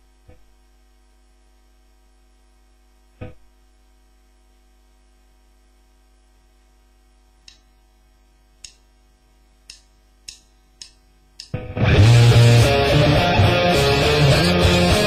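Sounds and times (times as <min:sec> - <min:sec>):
guitar amplifier hum: 0:00.0 - 0:15.0
sharp clicks: 0:07.5 - 0:07.7, 0:09.7 - 0:11.6
loud electric guitar playing: 0:11.5 - 0:15.0.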